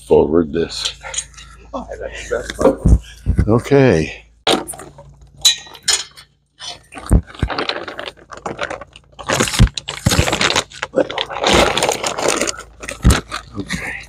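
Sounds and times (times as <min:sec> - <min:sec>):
hand tools clinking on metal: 0:00.8 - 0:01.5, 0:05.4 - 0:06.3.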